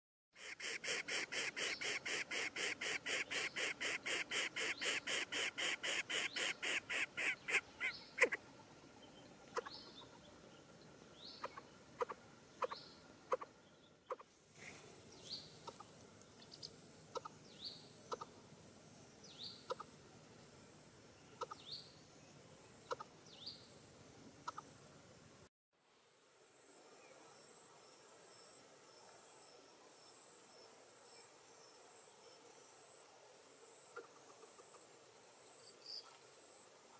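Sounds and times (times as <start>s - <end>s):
bird chick harsh begging calls: 0.4s - 8.4s.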